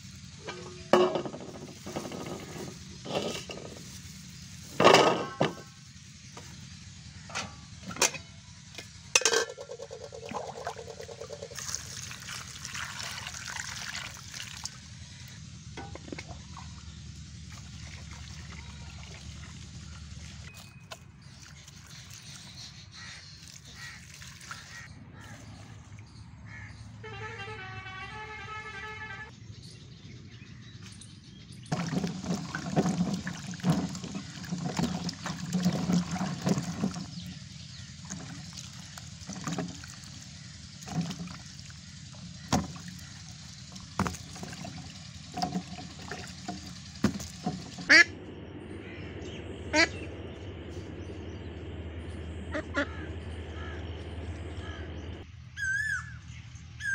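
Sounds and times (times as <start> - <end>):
water splashing in bowl: 9.2 - 15.0, 17.5 - 24.8, 31.7 - 48.0
duck quacks: 47.9 - 48.1, 52.5 - 53.8.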